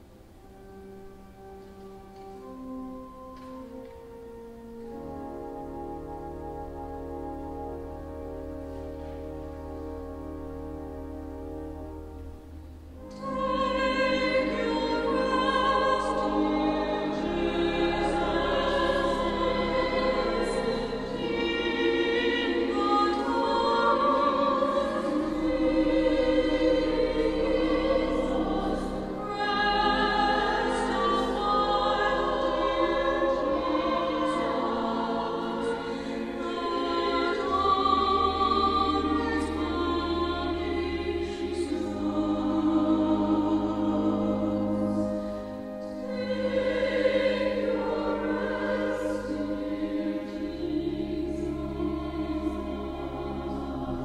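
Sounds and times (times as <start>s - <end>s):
choir singing: 13.0s - 54.0s.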